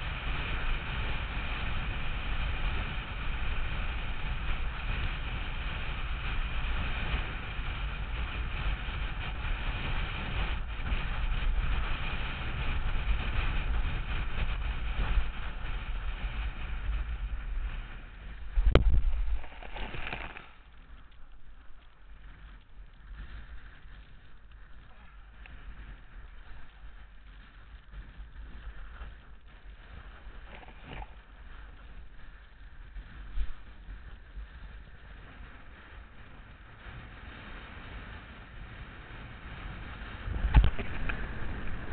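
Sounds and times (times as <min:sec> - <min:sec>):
wind rushing over microphone: 0:00.0 - 0:41.9
board moving on water: 0:09.8 - 0:20.7, 0:39.8 - 0:41.9.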